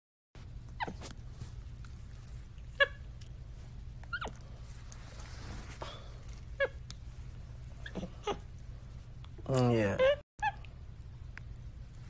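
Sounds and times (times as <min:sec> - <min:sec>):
monkey squeaking: 0:04.1 - 0:04.4, 0:06.6 - 0:06.8, 0:07.8 - 0:08.4, 0:09.9 - 0:10.6.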